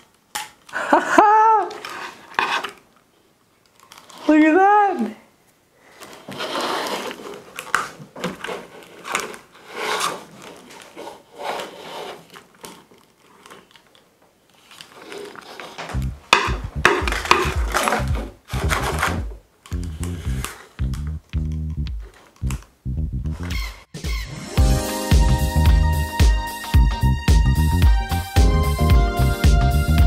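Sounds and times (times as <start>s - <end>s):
music with heavy bass beat: 16.0s - 30.0s
lamp arm rubbing and scraping: 16.8s - 20.6s.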